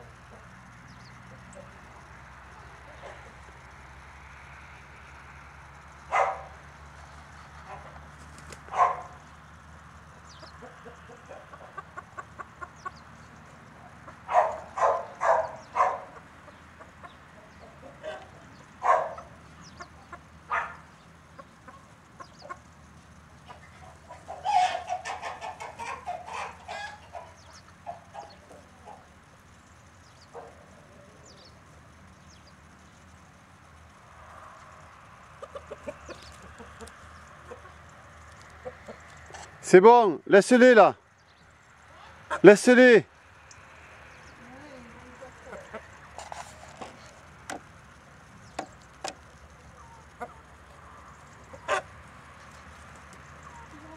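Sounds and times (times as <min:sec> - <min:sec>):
chickens clucking: 0:00.0 - 0:03.7, 0:06.1 - 0:34.0, 0:34.6 - 0:39.6, 0:41.6 - 0:53.9
loud chicken calls: 0:10.1 - 0:22.8, 0:23.4 - 0:29.5, 0:35.2 - 0:39.4, 0:41.8 - 0:43.0, 0:48.6 - 0:53.9.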